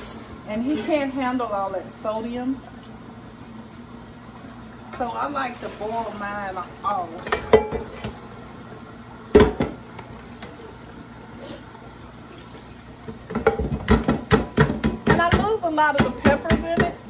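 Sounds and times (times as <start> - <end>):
tap water running into sink: 4.2 - 17.0
knocks and clatter into pot: 7.2 - 8.2, 9.3 - 10.5, 13.0 - 17.0
metal pot knocking: 7.3 - 8.2, 13.3 - 17.0.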